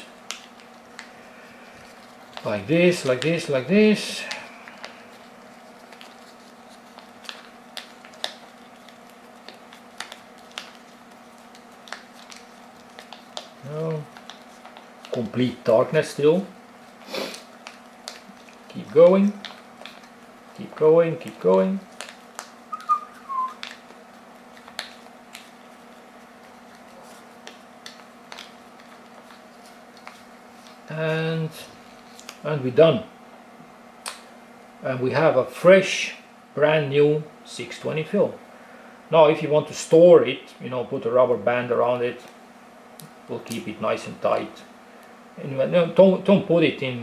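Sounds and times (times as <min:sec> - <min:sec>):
paper rustling: 0:00.0 - 0:22.6, 0:23.5 - 0:30.9, 0:31.6 - 0:32.4
steady low hum: 0:00.0 - 0:47.0.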